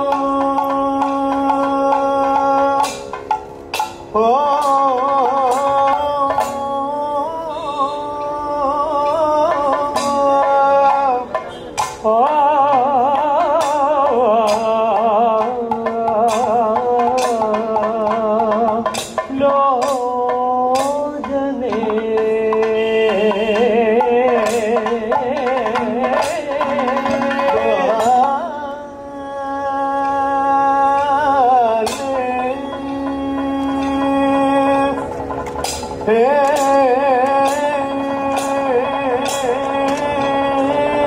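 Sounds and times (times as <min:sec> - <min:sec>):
sharp drum strokes: 0:00.0 - 0:28.7, 0:29.8 - 0:41.0
ornamented singing: 0:00.0 - 0:41.0
steady low drone: 0:19.7 - 0:41.0.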